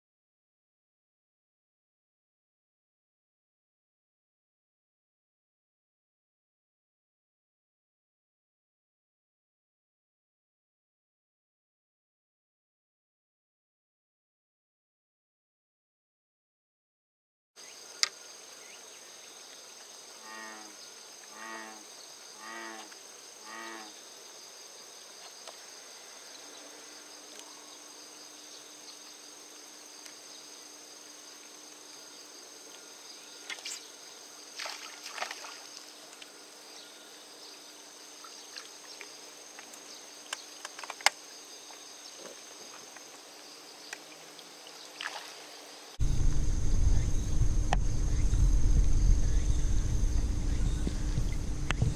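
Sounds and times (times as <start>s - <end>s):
faint steady hum: 17.6s - 51.9s
insects buzzing: 17.6s - 51.9s.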